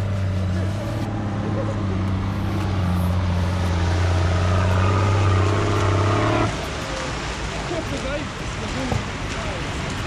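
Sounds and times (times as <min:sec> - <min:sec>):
vehicle engine droning: 0:00.0 - 0:07.4.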